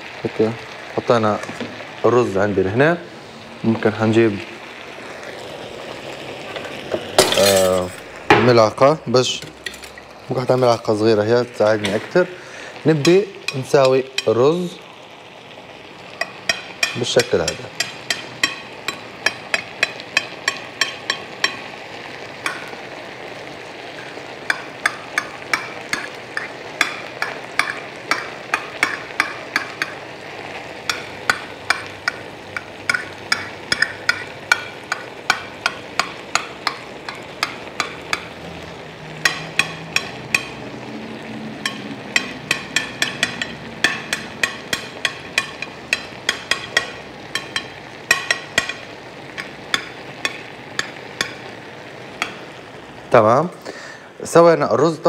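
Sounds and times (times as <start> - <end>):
spoon tapping on a plate: 16.2 - 21.7, 22.4 - 22.8, 24.5 - 30.0, 30.8 - 38.4, 39.2 - 40.6, 41.6 - 51.5, 52.2 - 52.4.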